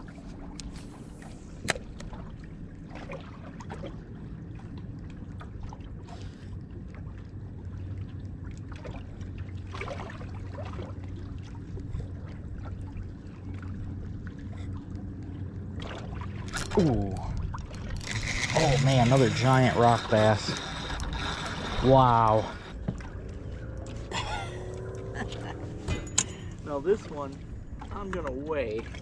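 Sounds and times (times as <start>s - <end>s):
boat engine hum: 0.0s - 29.0s
light water sounds: 0.0s - 29.0s
fishing reel ticking and rattling: 17.8s - 22.8s.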